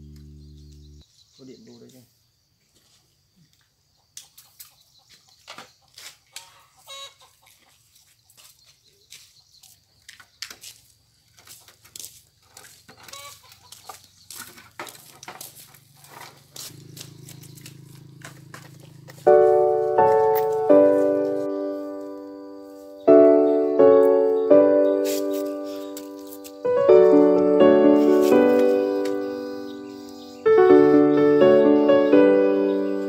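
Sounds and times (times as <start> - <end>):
low steady hum: 0.0 - 1.0
chickens clucking: 4.0 - 8.0, 12.9 - 14.1.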